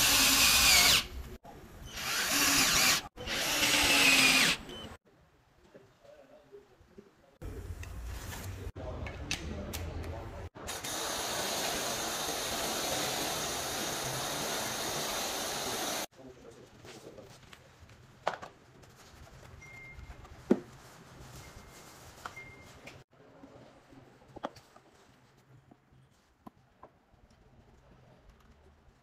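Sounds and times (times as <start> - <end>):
foam spray gun hissing: 10.7 - 16.1.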